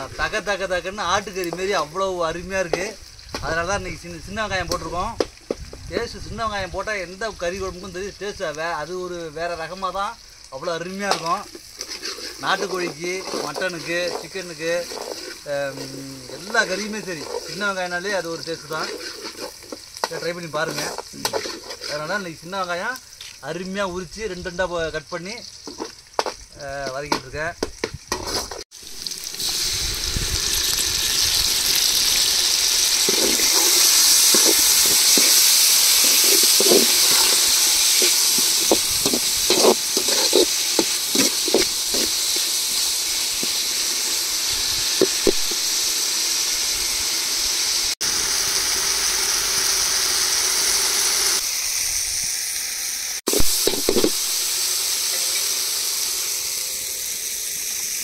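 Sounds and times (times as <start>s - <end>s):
shallots sizzling in oil: 0.0s - 58.0s
spoon stirring and scraping: 10.6s - 22.3s, 25.6s - 26.4s, 32.9s - 43.7s.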